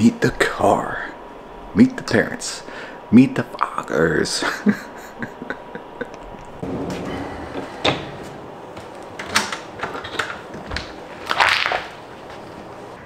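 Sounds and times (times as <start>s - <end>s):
door opening: 6.6s - 11.0s.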